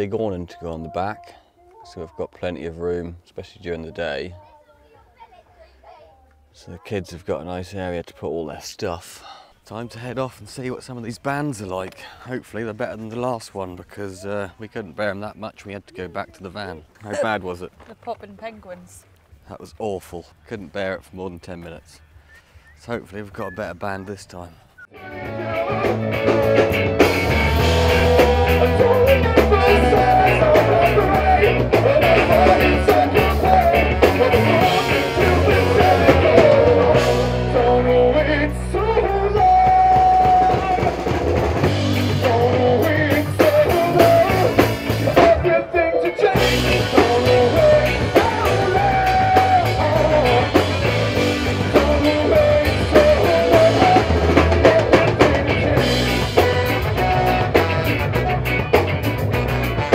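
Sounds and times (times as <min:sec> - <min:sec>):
saxophone: 0:24.8 - 0:38.2, 0:55.8 - 0:59.9
person singing: 0:24.9 - 0:58.7
bass guitar: 0:24.9 - 0:59.9
electric guitar: 0:24.9 - 0:59.9
drum kit: 0:25.0 - 0:59.9
trombone: 0:25.3 - 0:38.2, 0:40.4 - 0:59.9.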